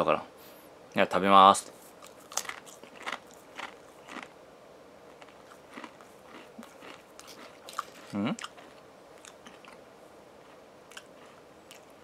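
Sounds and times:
crisp crunching when chewed: 2.0s - 4.4s, 5.1s - 9.8s, 10.4s - 12.0s.

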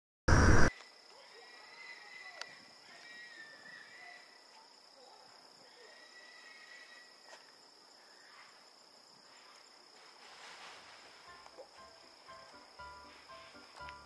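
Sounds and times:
high-pitched insect drone: 5.5s - 10.1s.

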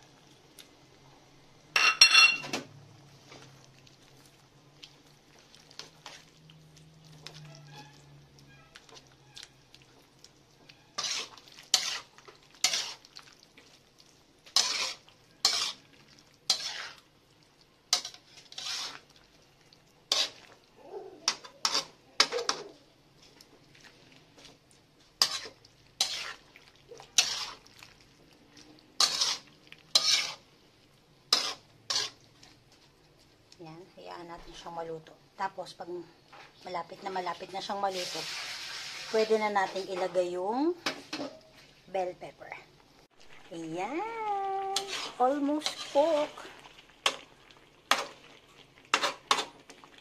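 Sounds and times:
metal spatula scraping a pan: 7.2s - 9.6s, 10.6s - 13.1s, 14.4s - 17.1s, 17.9s - 19.2s, 20.1s - 20.6s, 21.3s - 22.7s, 25.2s - 27.8s, 29.0s - 30.5s, 31.3s - 32.6s, 37.4s - 41.7s, 44.5s - 47.3s, 47.9s - 49.7s.

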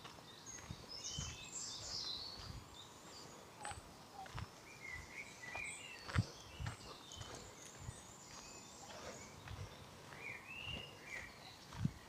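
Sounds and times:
birds singing: 0.0s - 12.0s
footsteps on dirt path: 0.0s - 12.0s.

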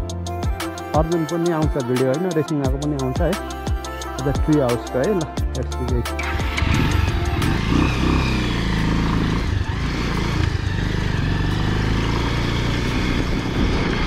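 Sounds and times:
motorcycle engine running: 6.2s - 14.0s.

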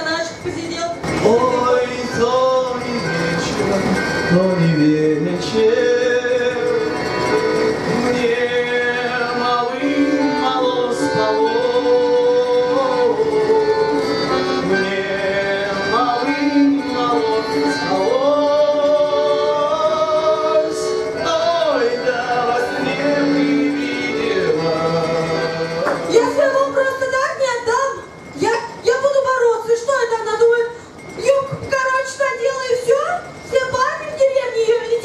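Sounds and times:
accordion: 0.0s - 35.0s
man singing into a microphone: 1.1s - 26.1s.

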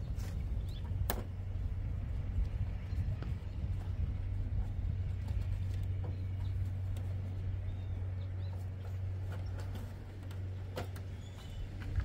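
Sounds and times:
steady low hum: 0.0s - 12.0s
bird chirping: 5.6s - 9.9s, 11.0s - 12.0s.

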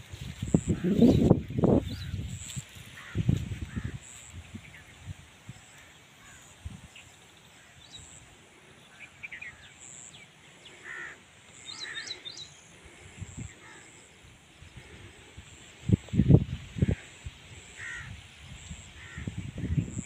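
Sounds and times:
crows cawing: 2.9s - 4.2s, 10.6s - 14.2s, 16.8s - 18.2s, 19.0s - 19.3s.

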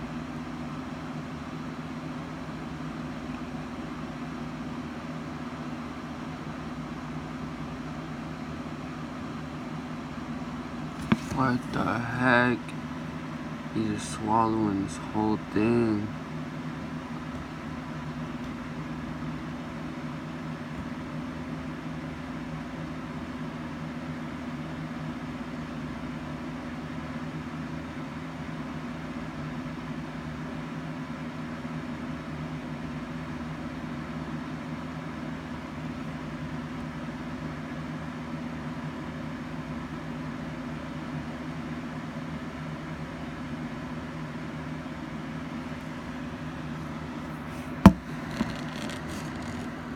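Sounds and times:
mechanical hum with hiss: 0.0s - 49.9s.

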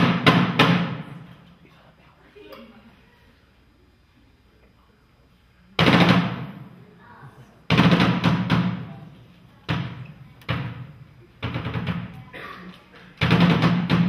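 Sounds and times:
drum hit with splashing liquid: 0.0s - 1.0s.

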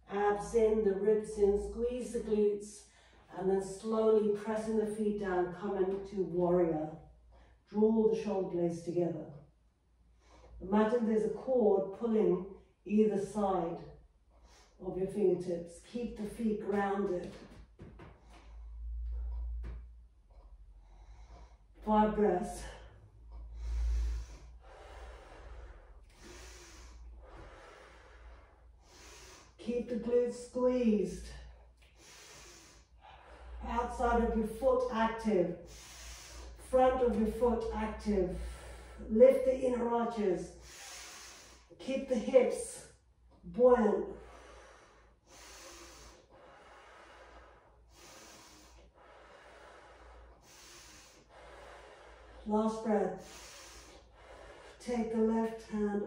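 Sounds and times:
woman breathing deeply: 18.0s - 21.9s, 22.6s - 29.6s, 31.3s - 33.7s, 35.6s - 36.6s, 38.3s - 39.1s, 40.5s - 41.8s, 44.1s - 52.5s, 53.1s - 54.8s.

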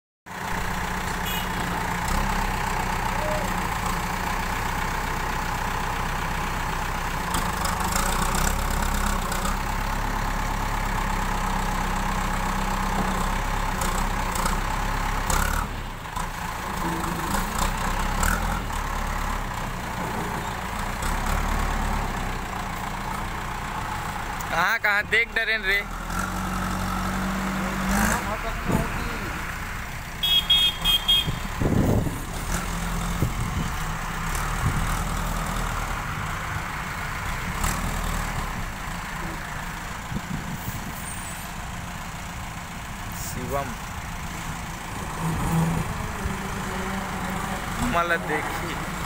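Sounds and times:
diesel engine running under load: 0.3s - 49.0s.

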